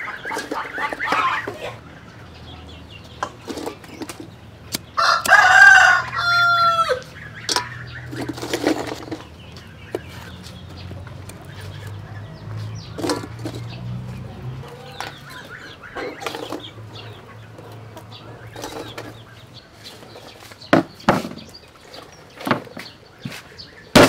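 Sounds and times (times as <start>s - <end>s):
chickens clucking: 0.0s - 24.0s
rooster crowing: 5.0s - 7.1s.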